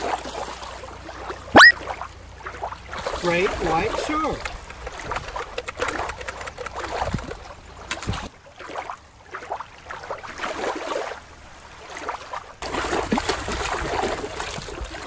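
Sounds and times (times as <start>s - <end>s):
shallow water lapping at shoreline: 0.0s - 15.0s
small water splashes: 0.0s - 15.0s.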